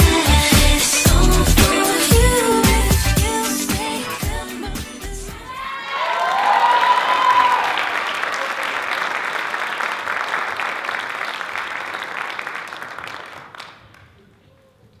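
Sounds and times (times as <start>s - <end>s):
audience applause: 5.8s - 14.0s.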